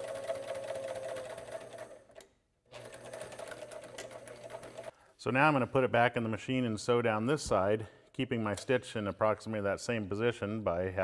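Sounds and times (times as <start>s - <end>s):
sewing machine stitching: 0.0s - 4.9s.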